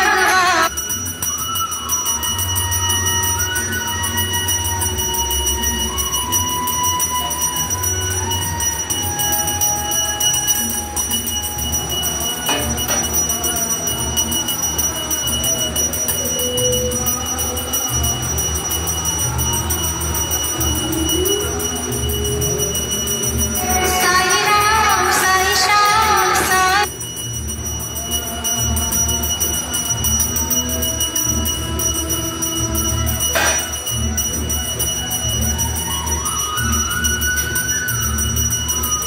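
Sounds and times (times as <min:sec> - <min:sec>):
faint wavering voices: 0:00.0 - 0:00.8, 0:01.5 - 0:27.0
temple bells ringing: 0:00.0 - 0:39.0.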